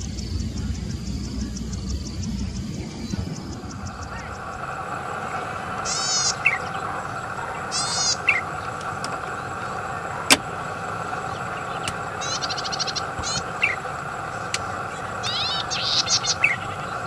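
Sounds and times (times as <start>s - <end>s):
bird singing buzzy trill: 0.0s - 17.0s.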